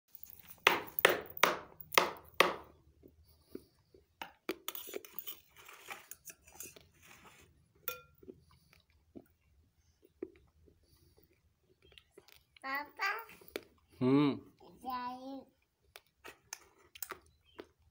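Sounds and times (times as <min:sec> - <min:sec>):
spoon scraping bowl: 0:04.6 - 0:08.2.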